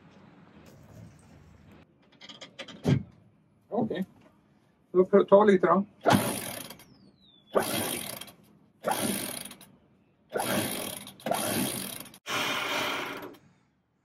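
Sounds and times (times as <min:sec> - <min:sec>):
electric winch running: 0:10.4 - 0:13.4.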